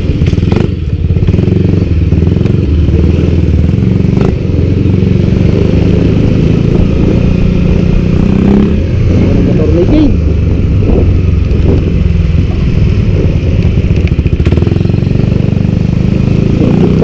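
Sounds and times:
motor scooter engine running: 0.0 - 17.0.

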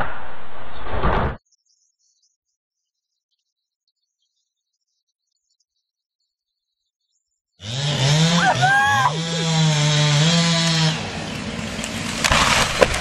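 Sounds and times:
chainsaw running at high revs: 7.6 - 13.0
person crying out: 8.4 - 9.5.

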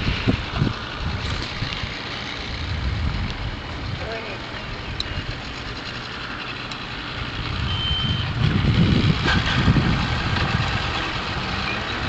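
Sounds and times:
outboard motors idling: 0.0 - 12.0.

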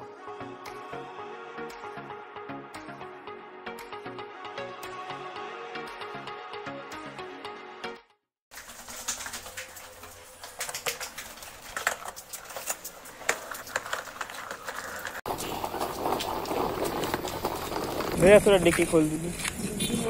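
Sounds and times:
steady outdoor street hum: 8.8 - 20.0.

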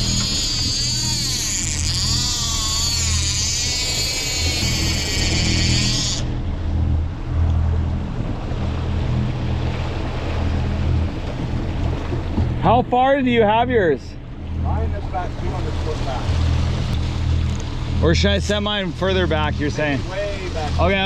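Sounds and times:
fishing reel clicker buzzing: 0.0 - 6.3
low boat engine drone: 0.0 - 21.0
water rushing past hull: 3.0 - 21.0.

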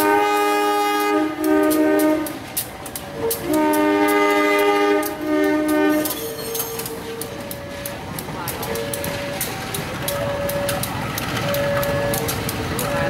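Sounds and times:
diesel locomotive horn blasts: 0.0 - 2.5, 3.2 - 6.4
train wheels clicking on track: 0.0 - 13.0.

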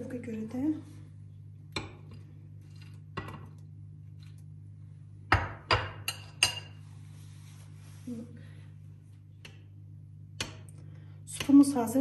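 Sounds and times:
low steady hum: 0.0 - 12.0
spoon clinking on glass bowls: 5.8 - 6.8.

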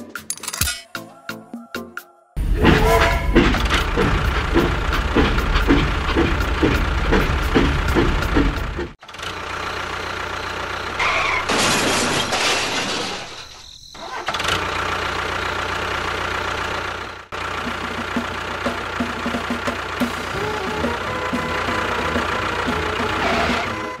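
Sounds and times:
engine-like running noise: 2.4 - 11.6, 14.0 - 24.0.

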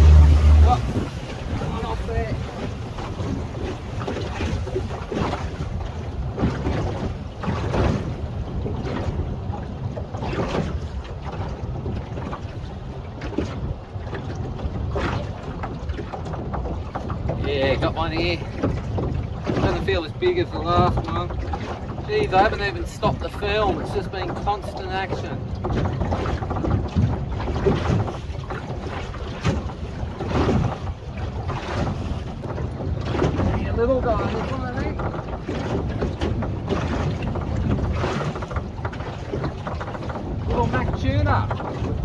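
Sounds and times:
steady low rumble: 0.0 - 3.6
water slapping against hull: 0.0 - 42.0
wind buffeting microphone: 0.0 - 42.0.

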